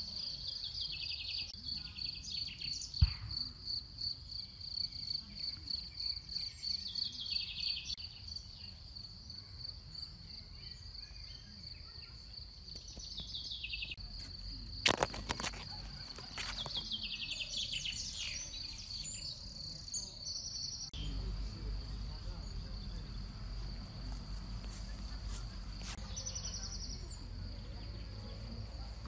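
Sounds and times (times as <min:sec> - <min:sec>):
crickets chirring: 0:12.4 - 0:29.0
bird chirps: 0:15.5 - 0:23.6, 0:24.7 - 0:28.9.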